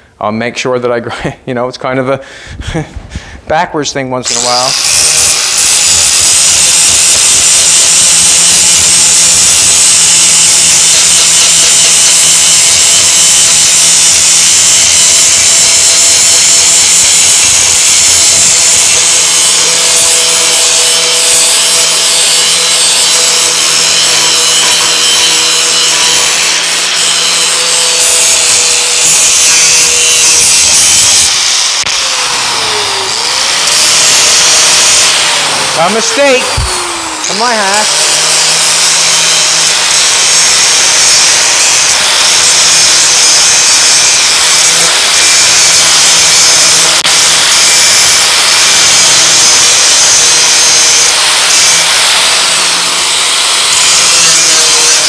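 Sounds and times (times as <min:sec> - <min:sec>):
angle grinder grinding steel: 0:04.2 - 0:55.0.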